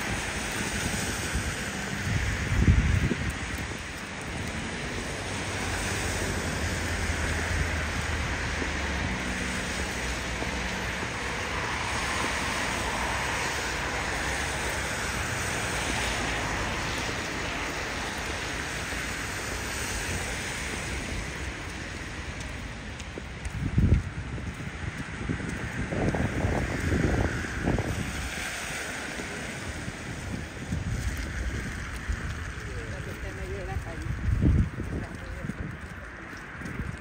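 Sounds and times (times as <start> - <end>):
traffic noise: 0.0 - 37.0
vehicle rumble passing: 0.0 - 37.0
wind on microphone: 0.0 - 37.0.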